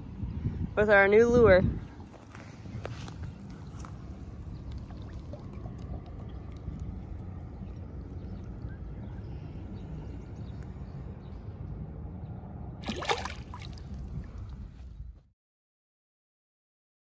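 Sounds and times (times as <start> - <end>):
low rumble: 0.0 - 15.2
fish splashing in water: 3.5 - 9.0, 12.8 - 14.5.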